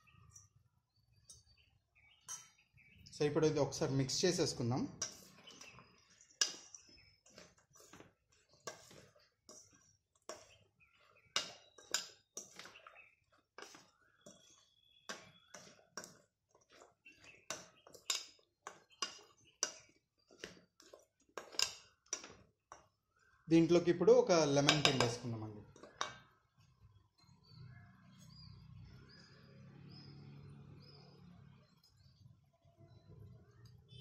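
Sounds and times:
spoon stirring salad in metal bowl: 1.2 - 26.8.

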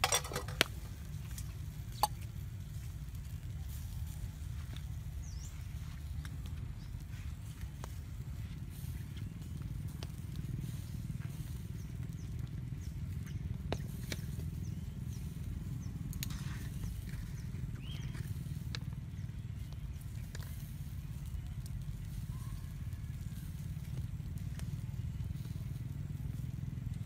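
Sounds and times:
low outdoor rumble: 0.0 - 27.0.

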